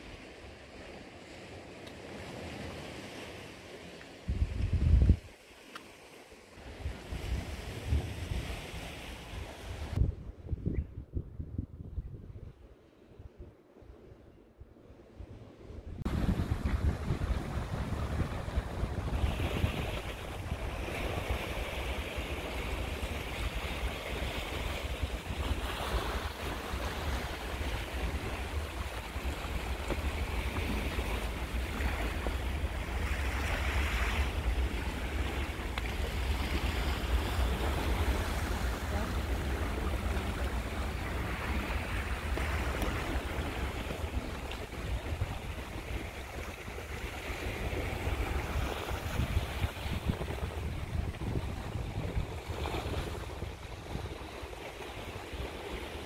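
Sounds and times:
wind rumbling on microphone: 0:04.2 - 0:05.5, 0:06.6 - 0:56.0
waves washing on rocky shore: 0:16.1 - 0:56.0.

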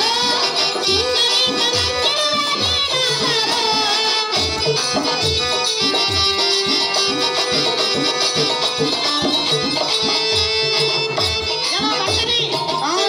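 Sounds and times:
hand drum beating: 0:00.0 - 0:13.0
sustained folk melody: 0:04.2 - 0:12.4.

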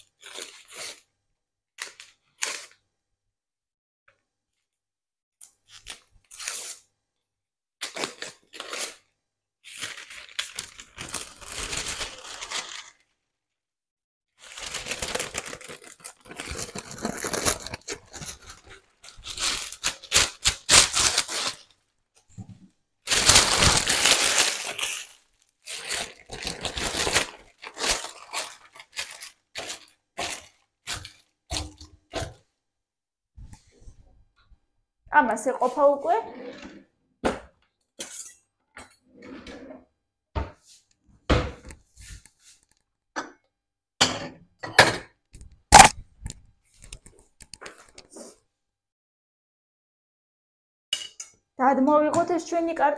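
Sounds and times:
parchment paper rustling and crinkling: 0:09.6 - 0:13.2, 0:14.4 - 0:32.4.

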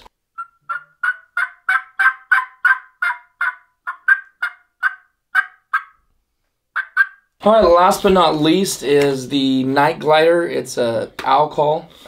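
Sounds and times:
turkey call yelps: 0:00.4 - 0:06.1, 0:06.7 - 0:07.4.

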